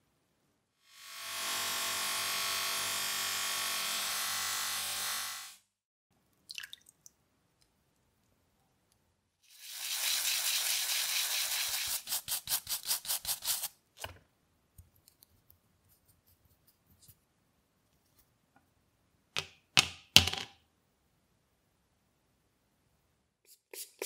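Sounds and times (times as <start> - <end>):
brush scrubbing rubber: 9.5 - 13.7, 23.5 - 24.0.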